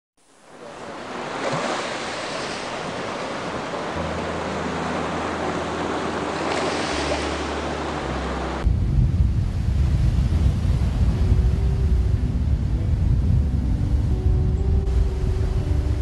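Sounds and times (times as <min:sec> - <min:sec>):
ocean surf on a beach: 0:00.2 - 0:16.0
low steady hum: 0:04.0 - 0:16.0.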